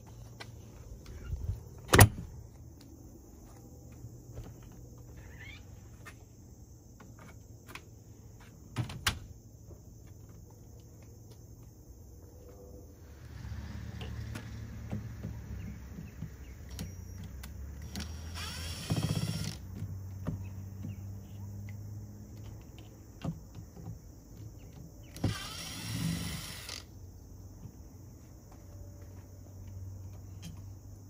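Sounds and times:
cordless drill motor whirring: 17.8s - 19.6s, 25.2s - 26.9s.

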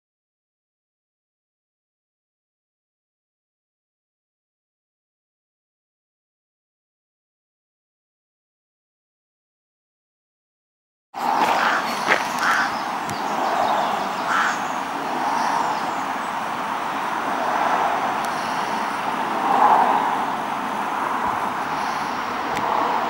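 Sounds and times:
road traffic passing: 11.2s - 23.0s.

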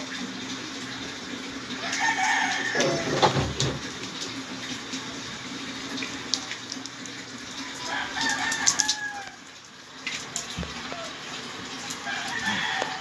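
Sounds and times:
rooster crowing: 1.8s - 3.4s, 7.6s - 9.5s, 12.0s - 13.0s.

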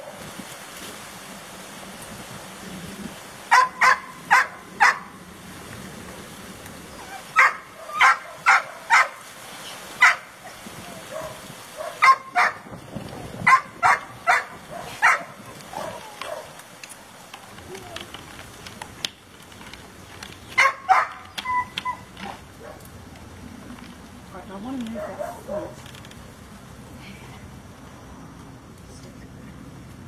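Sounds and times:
dog yapping: 3.5s - 5.0s, 7.0s - 9.2s, 11.0s - 12.6s, 13.5s - 16.5s, 20.6s - 22.8s.

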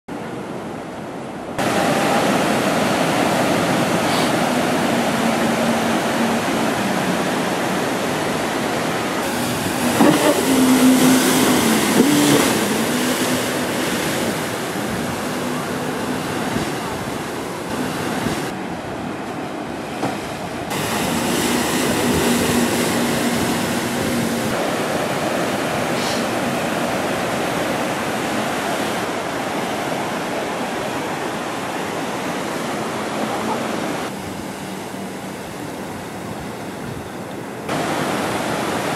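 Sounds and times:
waves washing: 0.1s - 38.9s
jet ski engine revving: 3.9s - 18.5s, 20.7s - 25.2s.

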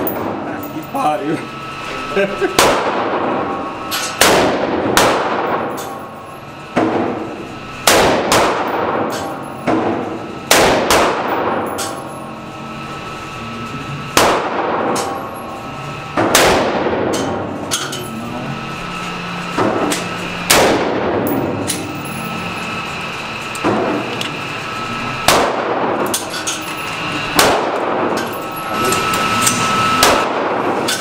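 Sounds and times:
rifle shots echoing indoors: 2.6s - 6.1s, 7.8s - 12.2s, 14.1s - 15.4s, 16.2s - 17.3s, 20.5s - 21.7s, 25.2s - 26.1s, 27.3s - 28.5s, 30.0s - 30.9s.

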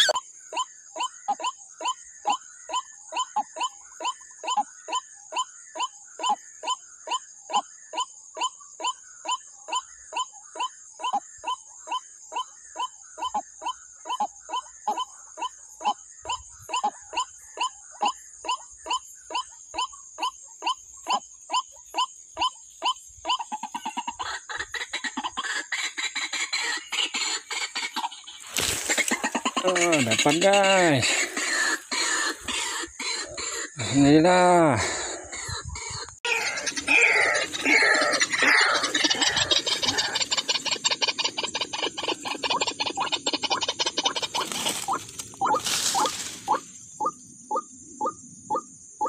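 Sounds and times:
bird calling: 0.0s - 48.8s
rustling through grass: 28.3s - 32.7s, 44.1s - 46.8s.

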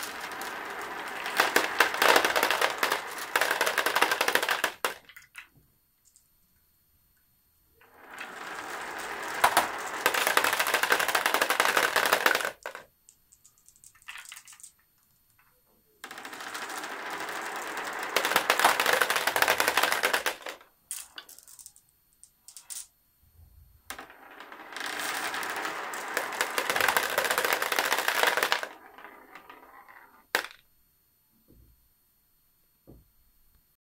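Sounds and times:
marbles rolling and rattling: 0.0s - 6.2s, 7.8s - 22.9s, 23.9s - 30.6s.

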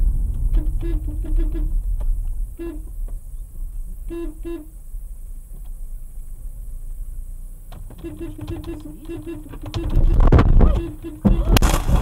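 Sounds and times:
road rumble: 0.0s - 12.0s
car horn toots: 2.6s - 3.1s, 4.0s - 4.8s, 7.8s - 12.0s.

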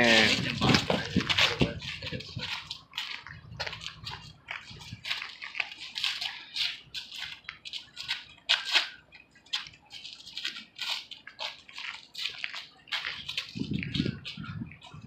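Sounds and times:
footsteps scuffing on asphalt: 0.0s - 15.0s.

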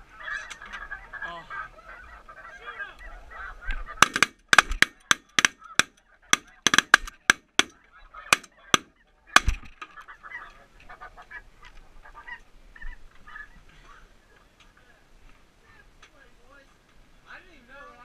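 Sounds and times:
geese calling: 0.1s - 13.6s.

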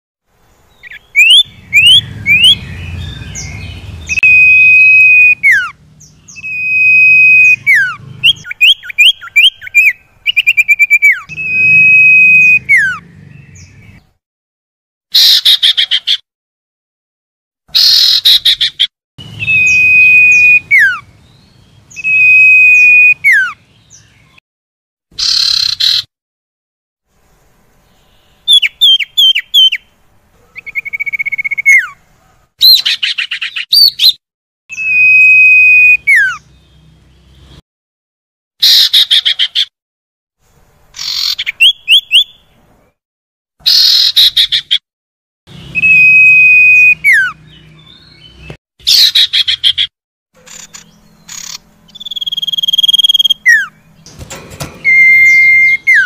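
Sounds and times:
bird long whistles: 0.8s - 2.6s, 4.1s - 5.7s, 6.3s - 13.0s, 19.4s - 21.0s, 22.0s - 23.6s, 34.7s - 36.4s, 45.8s - 47.4s
bird buzzy trill: 0.8s - 14.0s
bird chattering bursts: 48.8s - 56.0s
bird short falling notes: 52.1s - 56.0s.

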